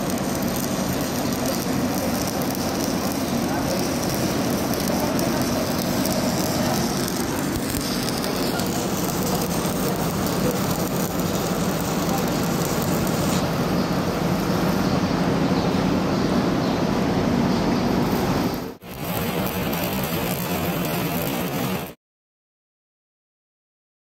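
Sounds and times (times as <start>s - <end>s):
welding arc crackling and sizzling: 0.0s - 15.1s, 18.0s - 22.0s.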